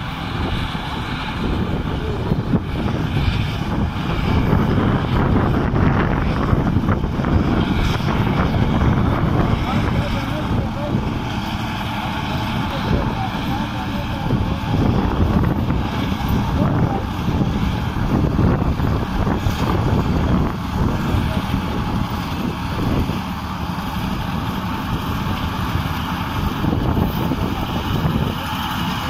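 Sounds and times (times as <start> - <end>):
straw reaper mechanical drone: 0.0 - 29.0
tractor engine under load: 0.0 - 29.0
wind buffeting microphone: 0.0 - 29.0.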